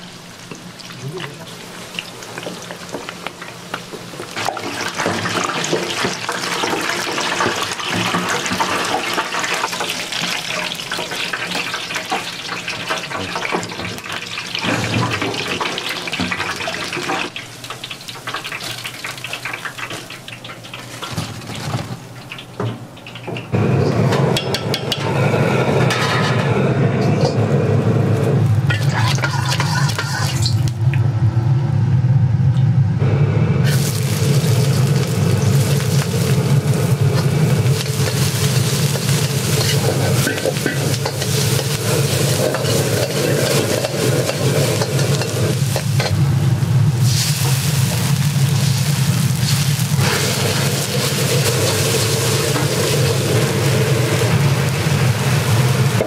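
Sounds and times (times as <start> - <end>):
food sizzling in a wok: 0.0 - 25.8, 28.1 - 30.7, 33.6 - 56.0
steady low roar: 30.7 - 33.7
utensils clicking against pan: 37.2 - 46.2.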